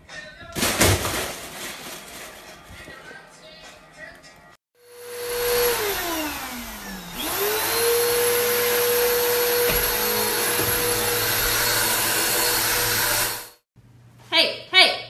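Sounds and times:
vacuum cleaner running: 4.8 - 13.6.

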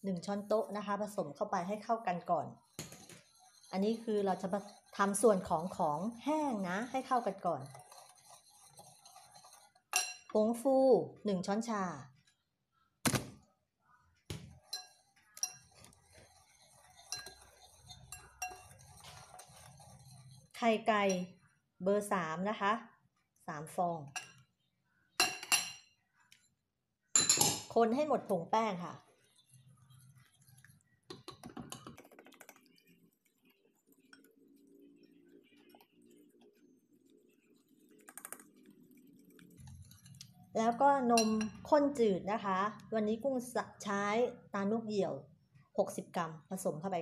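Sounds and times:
whisk clicking against glass bowl: 14.7 - 20.0
metal beater clinking on glass bowl: 41.2 - 41.6.

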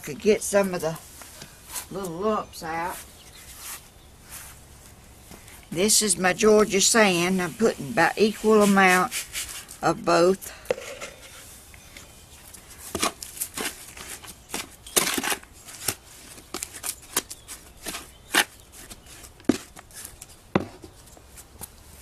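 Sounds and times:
trowel scraping dry cement: 7.6 - 9.8.

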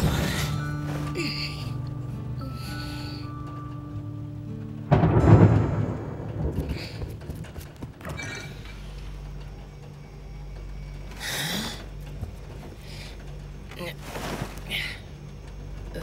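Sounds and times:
low steady hum: 0.0 - 16.0
soft background music: 0.0 - 16.0
low rumbling thump: 4.9 - 8.2.

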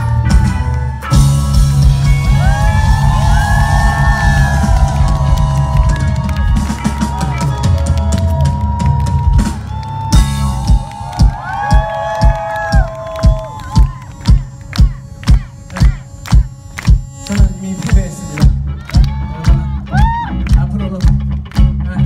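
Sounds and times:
bass drum and snare: 0.0 - 22.0
guitar: 0.0 - 22.0
bending pitched lines: 11.5 - 19.3.

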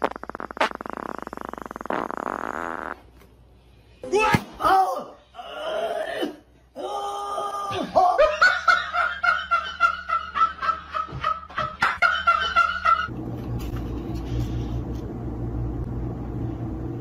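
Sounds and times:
kitten purring: 0.0 - 3.0.

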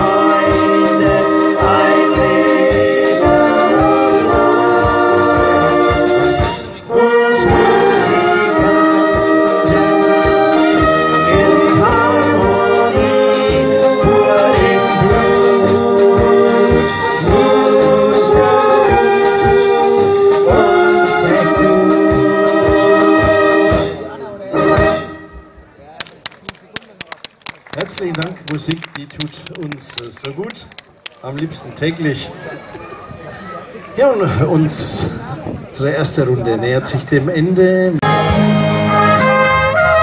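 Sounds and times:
brass band chords: 0.0 - 25.7, 38.0 - 40.0.

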